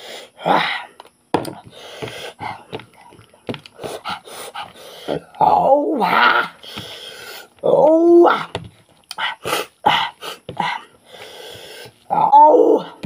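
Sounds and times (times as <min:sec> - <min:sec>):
huffing breaths: 0:01.5 - 0:03.1, 0:03.7 - 0:05.4, 0:06.6 - 0:07.6, 0:09.1 - 0:12.1.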